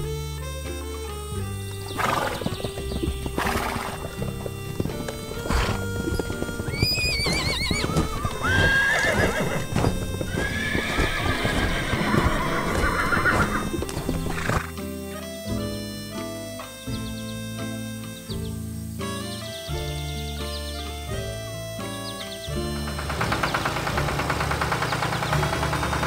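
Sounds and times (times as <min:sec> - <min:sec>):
hoofbeats clip-clopping: 0:00.0 - 0:26.0
light background music: 0:00.0 - 0:26.0
horse whinnying: 0:01.5 - 0:14.8.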